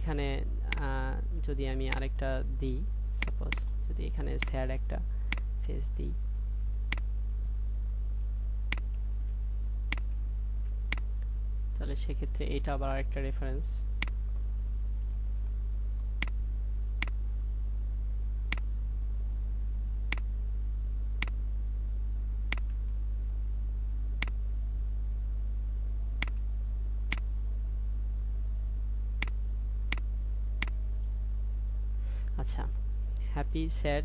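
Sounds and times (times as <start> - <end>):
low electrical hum: 0.0 - 34.0
computer mouse clicking: 22.5 - 22.7.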